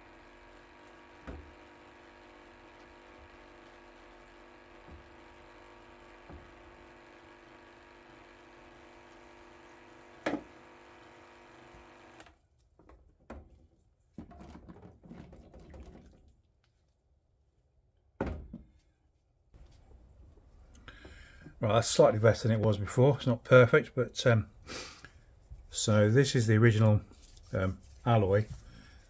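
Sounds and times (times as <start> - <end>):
electric pump humming: 0.0 - 12.4.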